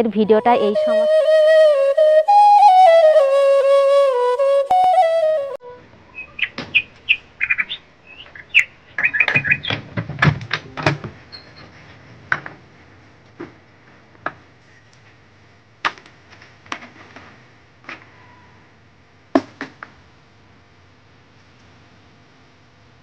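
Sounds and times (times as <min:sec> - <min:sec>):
birds chirping: 0:06.1 - 0:09.8
wooden door shut and bolted: 0:09.3 - 0:11.2.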